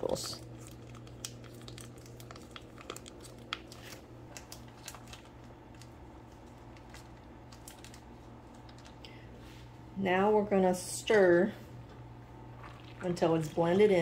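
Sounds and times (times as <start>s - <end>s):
foil pouch crinkling: 0.0s - 9.0s
steady low hum: 0.0s - 14.0s.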